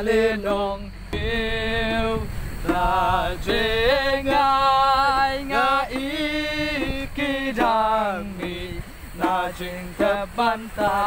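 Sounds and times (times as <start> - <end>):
low rumble: 0.0 - 7.4
group singing a hymn: 0.0 - 11.0.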